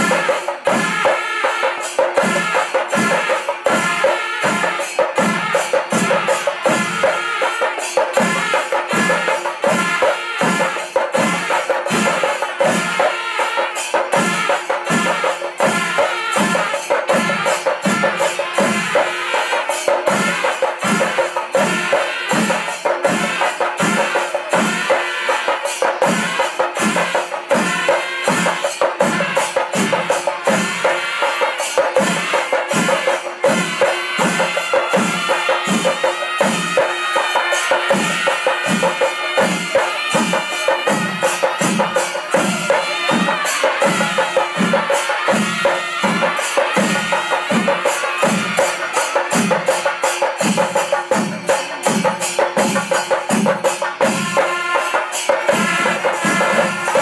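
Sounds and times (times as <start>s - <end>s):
drums steady beat: 0.0s - 57.0s
hand cymbals clashing: 0.0s - 57.0s.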